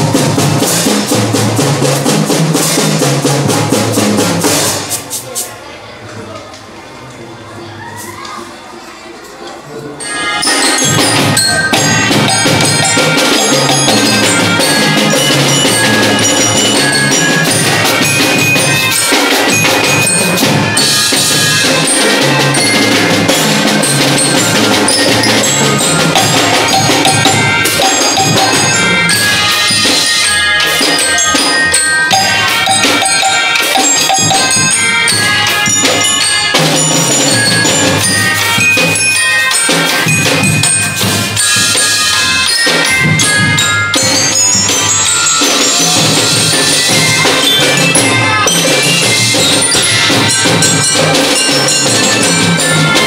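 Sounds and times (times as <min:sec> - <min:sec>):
marching drum band playing: 0:00.0 - 0:05.2, 0:10.4 - 0:53.0
snare tenor and bass drums: 0:00.0 - 0:05.2, 0:11.0 - 0:39.0
pianikas and mallet bells tune: 0:10.0 - 0:53.0.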